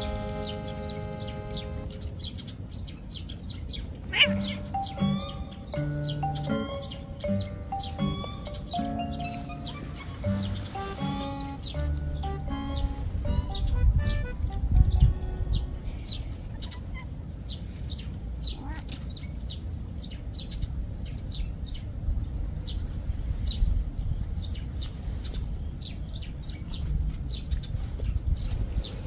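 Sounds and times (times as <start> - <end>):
steady low rumble: 0.0 - 17.4
small birds chirping: 0.0 - 29.0.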